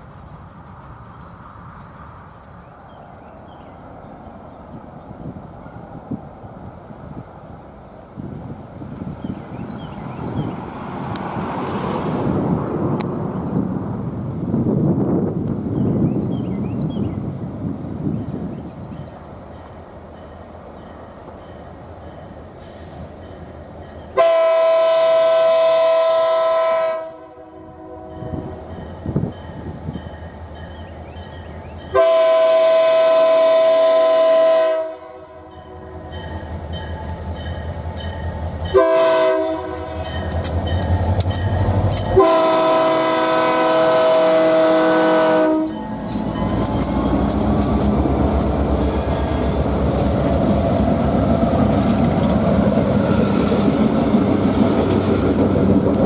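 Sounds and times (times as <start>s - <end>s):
locomotive engine rumbling: 0.0s - 56.0s
locomotive air horn: 24.2s - 28.6s, 31.9s - 36.0s, 38.7s - 40.2s, 42.2s - 47.3s
train wheels clicking over rails: 36.1s - 38.8s, 39.5s - 42.5s, 45.6s - 56.0s.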